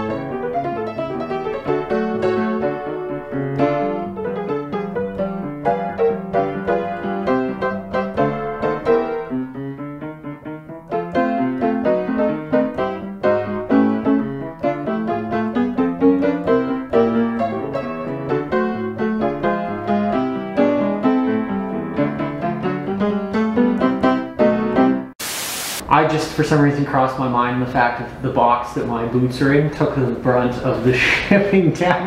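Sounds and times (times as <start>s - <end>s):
piano music: 0.0s - 25.2s.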